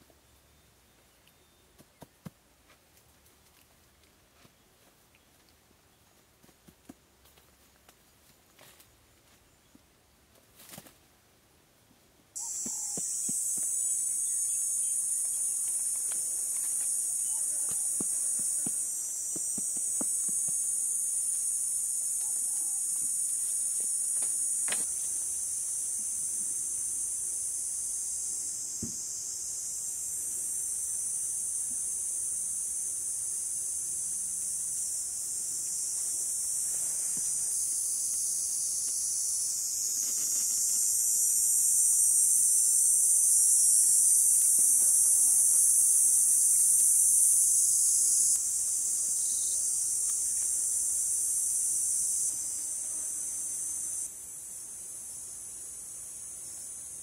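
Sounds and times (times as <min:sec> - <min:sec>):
high-pitched insect drone: 0:12.4 - 0:57.0.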